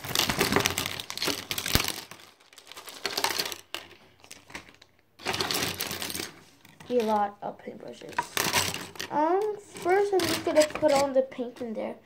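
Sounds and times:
plastic packaging crinkling: 0.0s - 11.6s
brush handles clattering on table: 8.0s - 11.1s.

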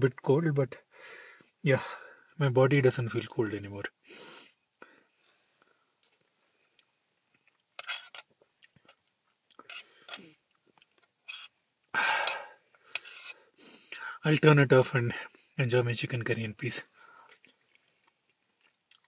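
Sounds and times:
man breathing: 0.9s - 2.4s, 12.0s - 14.2s, 16.9s - 17.4s
man chewing food: 5.3s - 13.5s, 17.0s - 19.0s.

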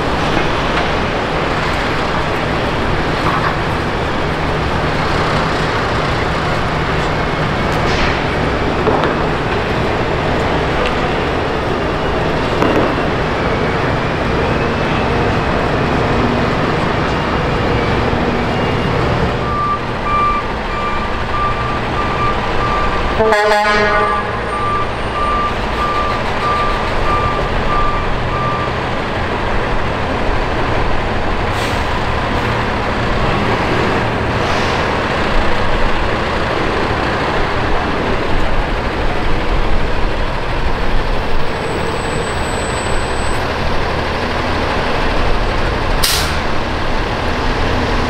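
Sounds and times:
diesel truck engine rumbling: 0.0s - 48.0s
reversing beeper: 11.0s - 28.8s
air brake hisses: 31.5s - 31.9s, 46.0s - 46.4s.

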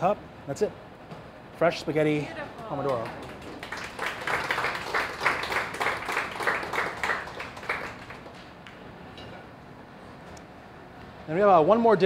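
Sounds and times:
small audience applauding: 2.5s - 8.8s.

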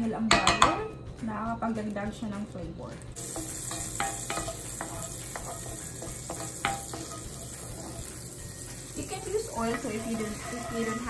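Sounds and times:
butter sizzling in skillet: 3.2s - 11.0s
wooden spatula knocking pan: 3.3s - 8.1s.

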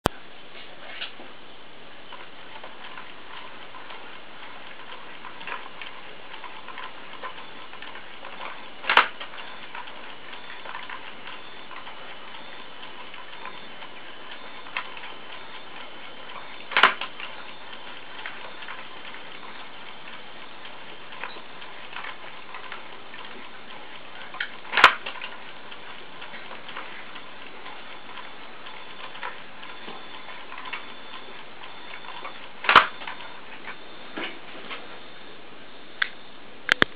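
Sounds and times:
mechanism ticking and clicking: 2.0s - 34.2s
sharp mechanical clack: 24.4s - 25.3s.

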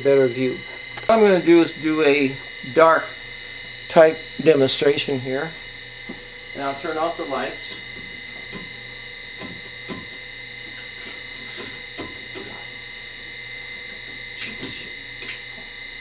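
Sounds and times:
high-pitched electrical whine: 0.0s - 16.0s.

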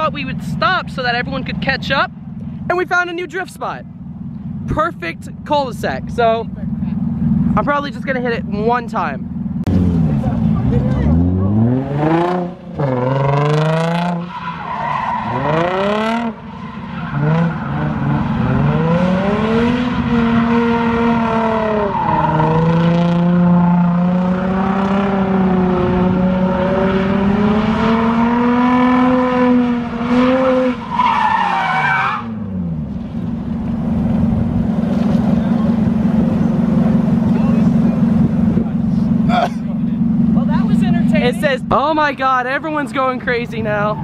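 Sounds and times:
car engine revving: 0.0s - 44.0s
tyres spinning and skidding: 9.4s - 24.7s, 25.3s - 40.4s
tyre squeal: 14.0s - 18.9s, 30.4s - 32.4s.

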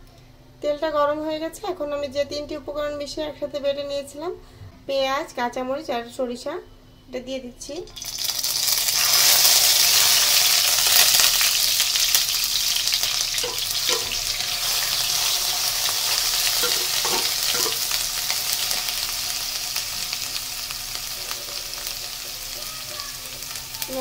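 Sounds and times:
paste sizzling in hot oil: 8.0s - 24.0s
wooden spatula stirring: 13.4s - 17.9s.

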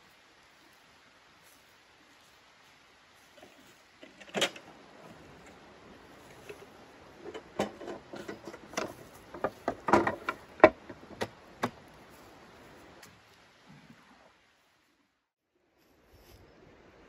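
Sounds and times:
sharp knocks and clatters: 7.2s - 11.8s.

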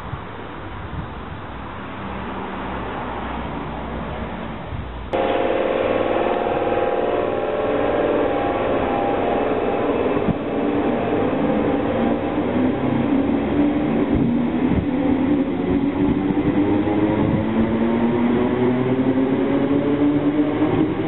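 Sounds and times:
electric train motors whining: 5.2s - 21.0s.

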